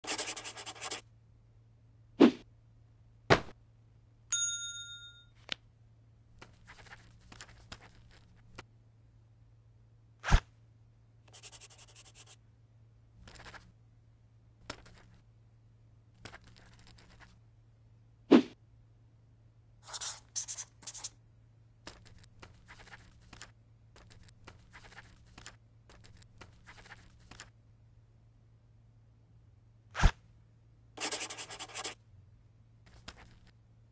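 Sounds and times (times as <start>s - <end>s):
pen scratching on paper: 0.0s - 1.0s, 11.3s - 12.4s, 19.8s - 21.1s, 31.0s - 32.0s
pencil scribbling: 0.0s - 1.0s, 11.3s - 12.4s, 19.8s - 21.1s, 31.0s - 32.0s
faint low hum: 0.0s - 33.9s
bell-like ding: 4.3s - 5.4s.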